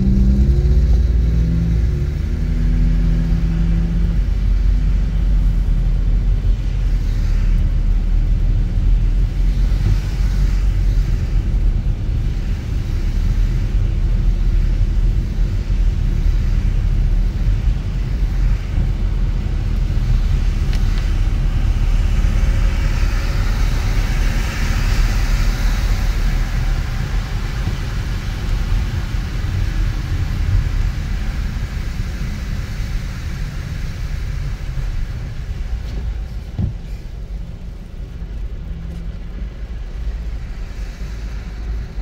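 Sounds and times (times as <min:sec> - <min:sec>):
car engine and road rumble: 0:00.0 - 0:42.0
hiss: 0:40.2 - 0:42.0.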